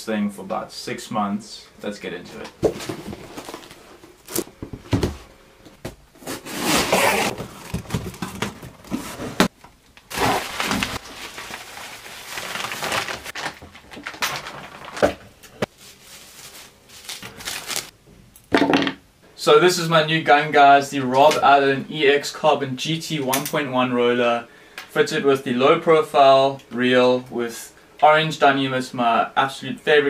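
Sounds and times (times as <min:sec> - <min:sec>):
packaging crinkling and rustling: 0:02.6 - 0:05.2, 0:06.2 - 0:17.9.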